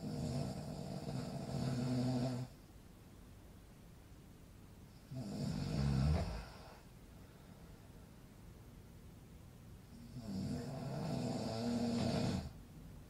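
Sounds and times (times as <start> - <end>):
man snoring: 0.0 - 2.6, 5.1 - 6.8, 10.0 - 12.6.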